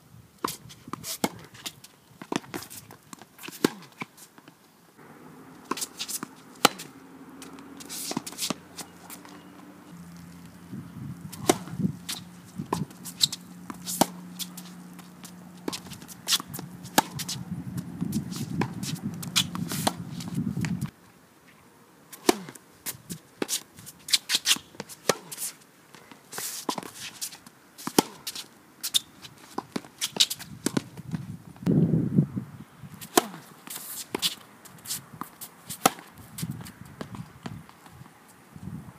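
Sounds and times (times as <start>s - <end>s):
racket hitting tennis ball: 0.4s - 4.1s, 5.0s - 20.9s, 22.1s - 31.0s, 33.0s - 37.8s
tennis ball bouncing: 5.0s - 10.6s, 11.3s - 20.9s, 22.2s - 22.6s, 27.8s - 30.9s, 33.0s - 36.1s
low steady hum: 5.0s - 21.0s
shoe scuffs and footsteps: 5.6s - 10.3s, 11.3s - 20.9s.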